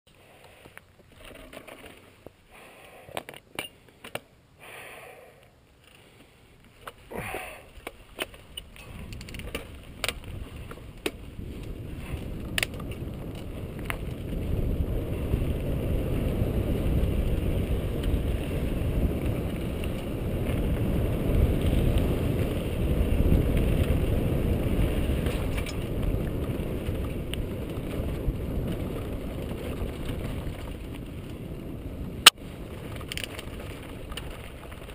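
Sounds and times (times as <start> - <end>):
tyre noise on dirt: 0.1 - 34.9
bike clicks and rattles: 0.4 - 4.3, 5.8 - 34.9
wind on microphone: 8.5 - 34.9.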